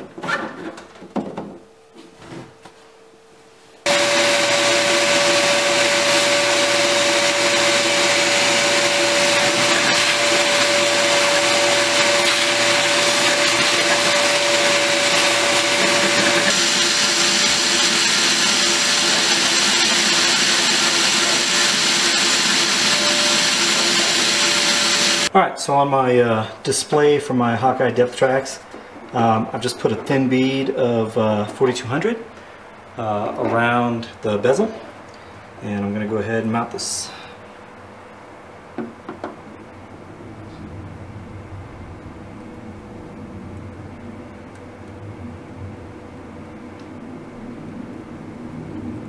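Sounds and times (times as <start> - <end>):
shop vacuum running: 3.6 - 25.3.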